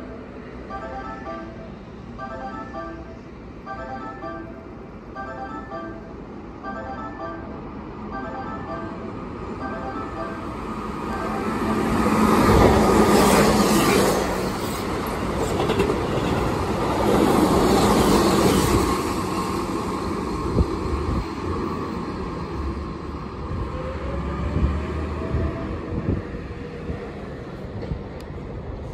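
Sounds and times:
train wheels rolling on rails: 10.6 - 28.9
clacks over rail joints: 15.1 - 16.6.

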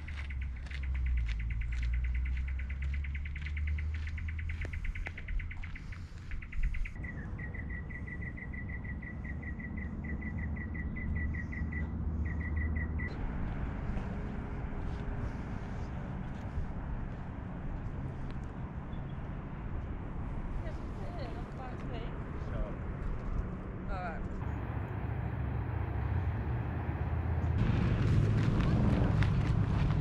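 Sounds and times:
low rumble: 19.8 - 30.0.

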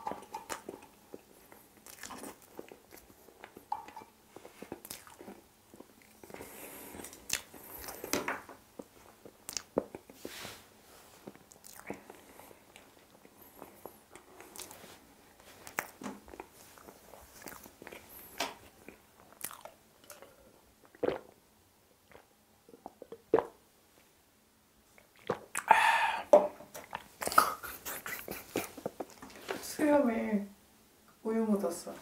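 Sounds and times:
chewing and swallowing: 0.1 - 8.2, 11.2 - 14.9, 15.6 - 21.4, 22.0 - 23.6, 25.0 - 25.7
wet mouth clicks: 7.0 - 8.0, 9.4 - 10.1, 25.0 - 25.8, 26.8 - 29.2.

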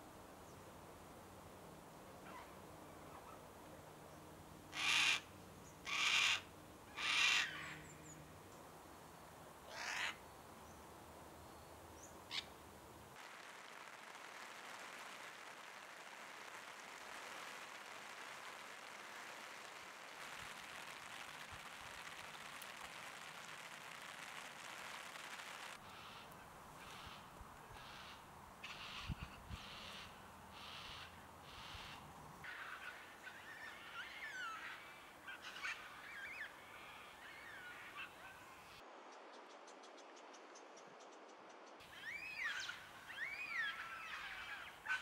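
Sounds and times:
cockatoo calling: 4.7 - 7.9, 9.7 - 10.2
rain hissing: 13.2 - 25.8.

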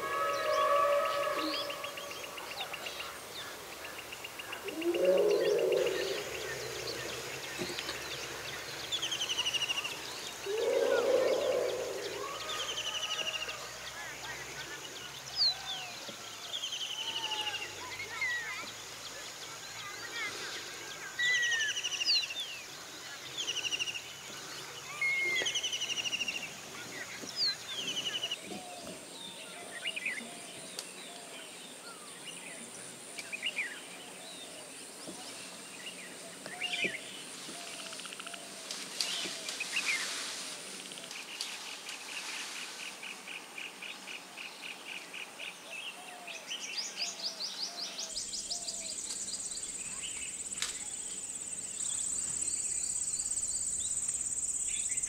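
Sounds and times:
high insect whine: 0.0 - 16.0
birds chirping and trilling: 0.0 - 34.9, 42.8 - 55.0.

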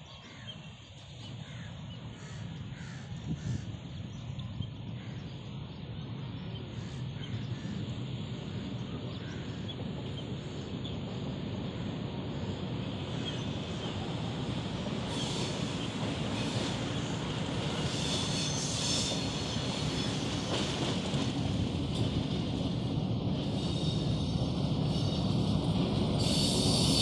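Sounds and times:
train locomotive rumble: 0.0 - 27.0
crows cawing: 1.4 - 3.7.

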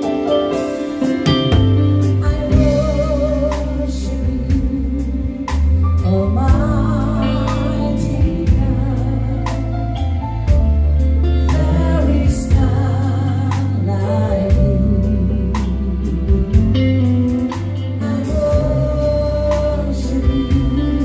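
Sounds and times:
live band playing slow song: 0.0 - 21.0
person singing with vibrato: 2.0 - 10.0, 17.9 - 21.0.

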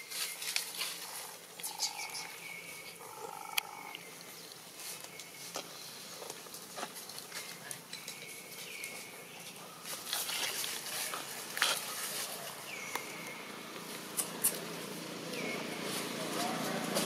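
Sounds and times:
dry leaves rustling: 0.0 - 17.0
high-pitched monkey calls: 1.0 - 4.0.

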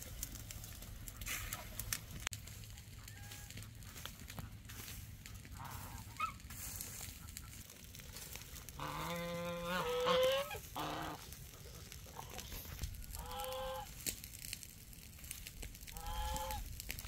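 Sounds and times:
fowl honking call: 5.5 - 7.6, 8.8 - 11.3, 12.1 - 13.9, 15.9 - 16.7.

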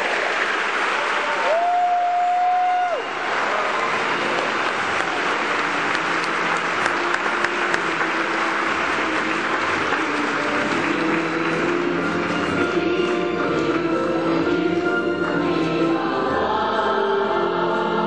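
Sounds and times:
audience applauding: 0.0 - 13.2
orchestra music: 3.1 - 18.0.

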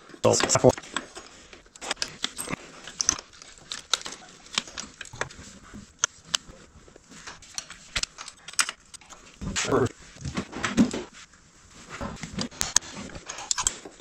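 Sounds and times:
metal parts clicking and knocking: 0.2 - 5.4, 7.5 - 9.2.

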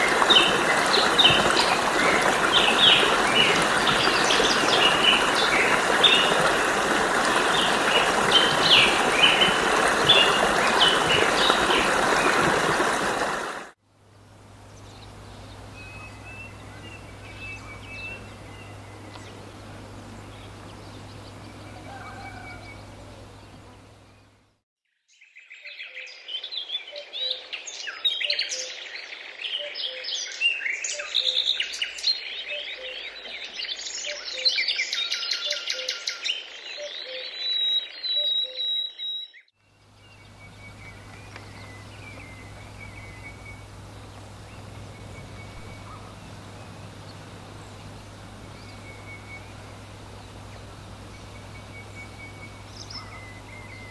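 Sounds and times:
running water rushing: 0.0 - 24.2, 39.7 - 53.9
birds chirping: 0.0 - 24.6, 27.8 - 53.9
low steady hum: 0.0 - 24.6, 39.6 - 53.9
lower bird call: 14.6 - 24.4, 36.8 - 53.9.

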